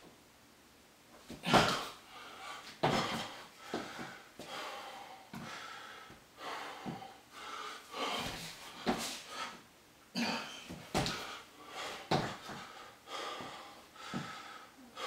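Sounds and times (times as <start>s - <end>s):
feet thudding on wooden floor: 1.3s - 1.9s, 2.8s - 4.1s, 6.8s - 7.1s, 8.0s - 9.2s, 10.7s - 11.3s, 12.1s - 14.4s
man panting hard: 1.4s - 9.6s, 10.7s - 15.0s.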